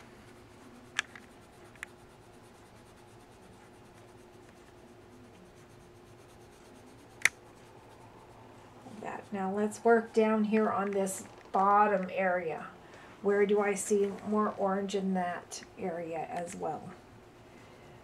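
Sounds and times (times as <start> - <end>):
pencil ticks: 0.0 - 8.1
pencil scratching on paper: 0.0 - 12.0.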